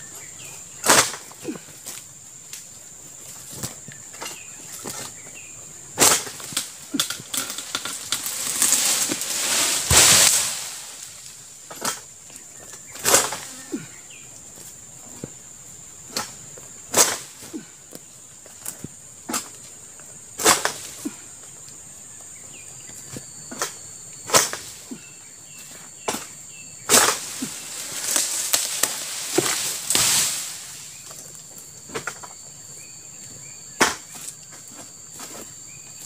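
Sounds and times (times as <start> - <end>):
high insect drone: 0.0 - 36.0
leafy rustling: 2.8 - 15.3, 26.8 - 32.0
blade cutting strikes on fronds: 6.0 - 11.0, 23.5 - 24.7, 26.9 - 30.6.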